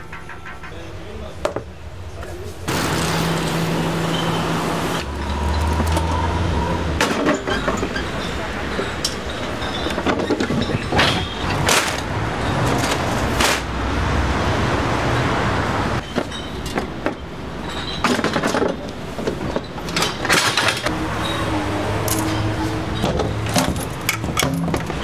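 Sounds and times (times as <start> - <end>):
metal tables knocking and clattering: 0.0 - 1.7, 7.0 - 13.7, 16.0 - 20.9, 22.1 - 25.0
street traffic: 0.0 - 25.0.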